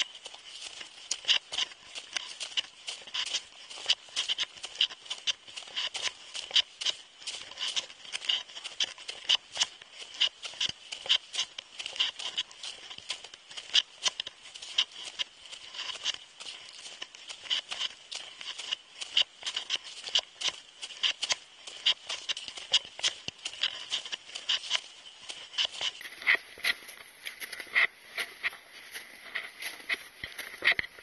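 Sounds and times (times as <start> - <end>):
boots crunching on snow: 0.0 - 31.0.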